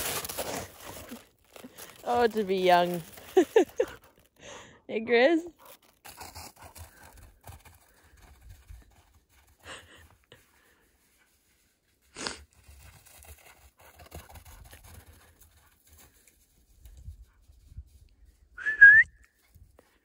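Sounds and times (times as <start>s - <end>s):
footsteps crunching on snow: 0.0s - 4.2s.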